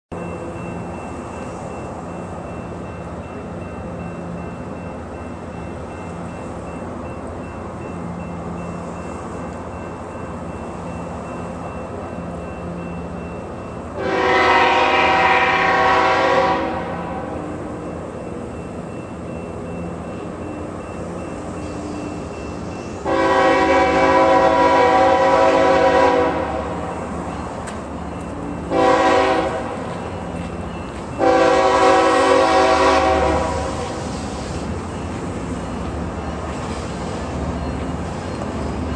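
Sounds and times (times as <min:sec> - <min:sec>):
low train rumble: 0:00.1 - 0:38.9
train air horn blasts: 0:14.0 - 0:17.4, 0:23.0 - 0:26.8, 0:28.7 - 0:29.9, 0:31.2 - 0:34.5.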